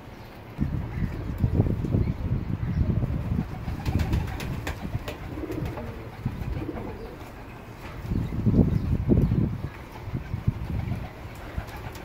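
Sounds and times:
pigeons cooing: 3.1s - 7.8s
wings flapping: 3.3s - 7.5s, 10.0s - 12.0s.

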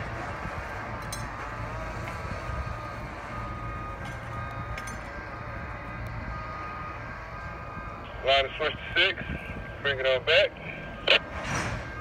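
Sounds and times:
freight cars rumbling: 0.0s - 12.0s.

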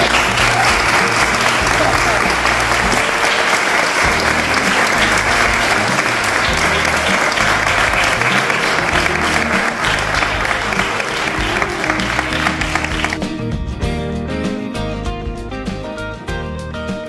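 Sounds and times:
people applauding: 0.0s - 13.4s
music playing: 0.0s - 17.0s.

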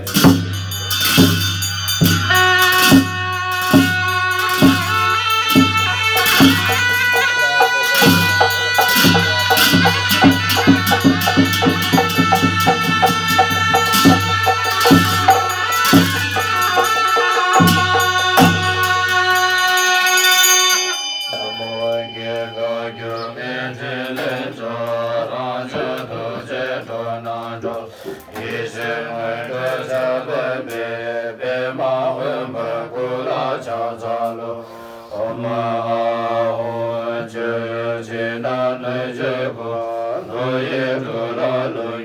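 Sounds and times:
ringing instrumental music: 0.0s - 25.6s
men chanting in unison: 6.2s - 18.6s, 21.3s - 42.0s.

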